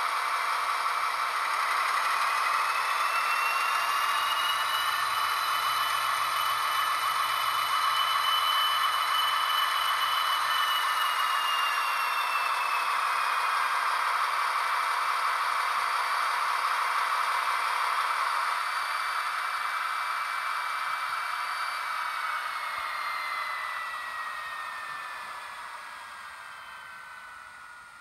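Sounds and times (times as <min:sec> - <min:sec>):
model locomotive diesel sound: 0:00.0 - 0:28.0
thin falling whine: 0:01.9 - 0:13.6, 0:20.9 - 0:28.0.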